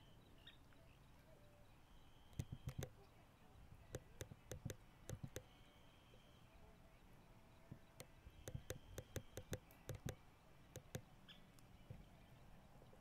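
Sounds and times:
sharp irregular clicks: 2.3s - 3.0s, 3.9s - 5.5s, 7.7s - 10.2s, 10.8s - 11.1s.

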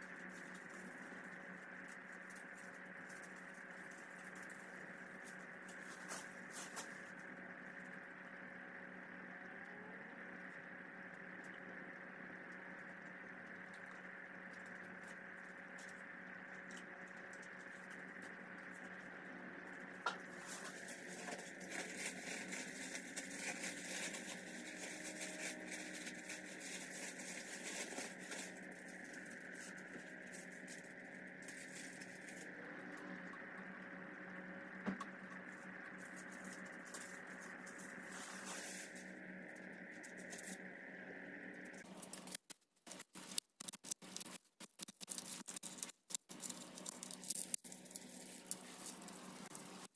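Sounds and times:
steady background hum: 0.0s - 49.9s
paper rustling and crinkling: 0.1s - 7.2s, 20.2s - 32.5s, 35.4s - 39.2s, 41.8s - 49.9s.

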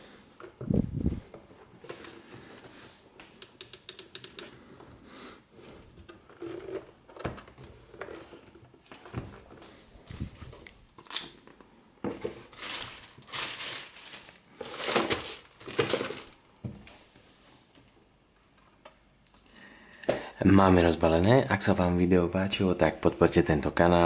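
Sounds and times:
plastic crinkling: 7.9s - 16.4s.

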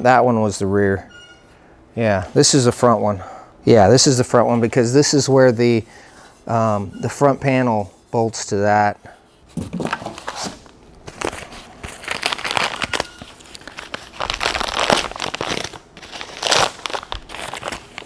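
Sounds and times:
paper crinkling and crackling: 9.7s - 18.0s.

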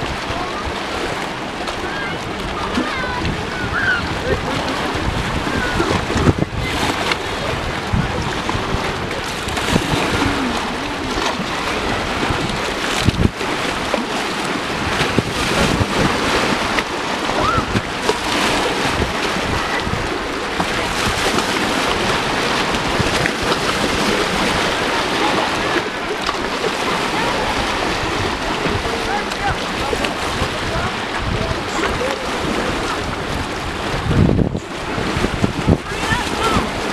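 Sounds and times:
waves lapping against boulders: 0.0s - 36.9s
wind rumbling on microphone: 0.0s - 36.9s.

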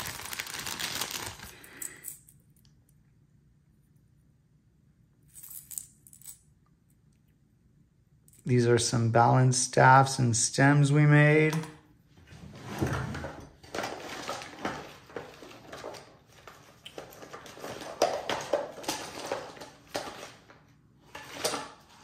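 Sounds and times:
small objects clattering in drawer: 12.7s - 22.0s.

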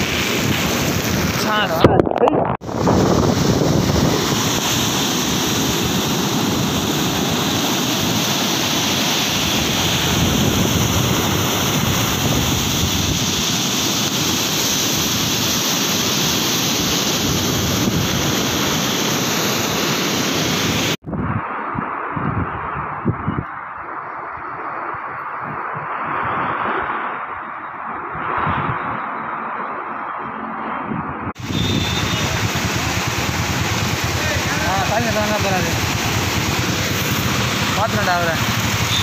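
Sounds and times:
wind buffeting microphone: 0.0s - 19.1s, 20.6s - 29.2s
sea surf breaking on beach: 0.0s - 21.0s, 24.5s - 29.0s, 31.3s - 39.0s.

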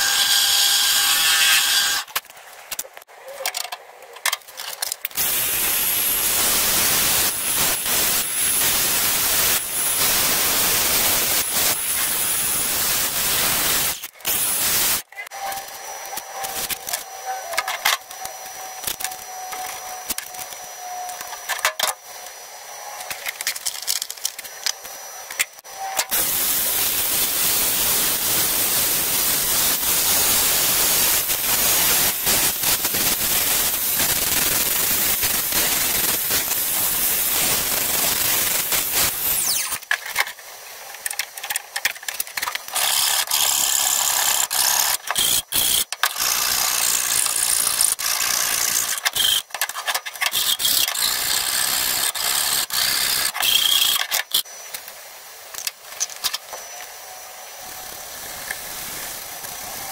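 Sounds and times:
angle grinder cutting metal: 0.0s - 2.1s, 5.2s - 22.0s, 25.4s - 39.9s, 42.6s - 54.5s.

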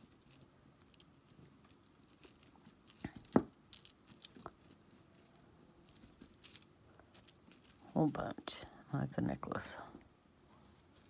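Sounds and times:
beaded bracelets clicking: 0.0s - 8.0s.

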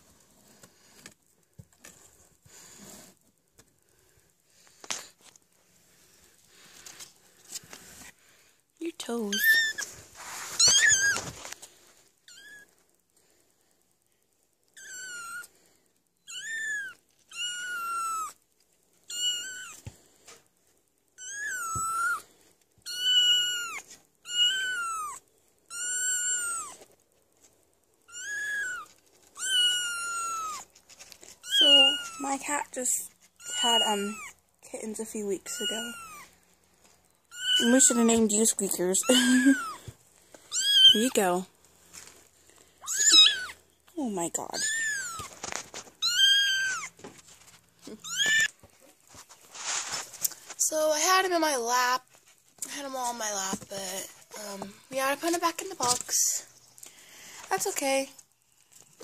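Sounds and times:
rustling and handling noises: 0.0s - 14.5s, 16.9s - 59.0s
kitten mewing: 39.0s - 39.9s, 42.8s - 43.6s, 46.0s - 47.0s, 47.8s - 48.6s.

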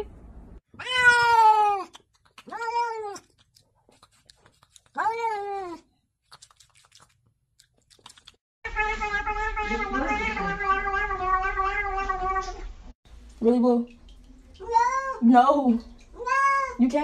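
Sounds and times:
cat meowing: 0.8s - 1.9s, 8.7s - 12.7s, 16.2s - 16.8s.

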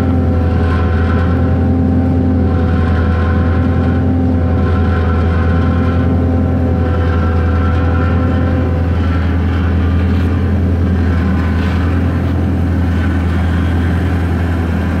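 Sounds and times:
forklift truck humming: 0.0s - 15.0s.

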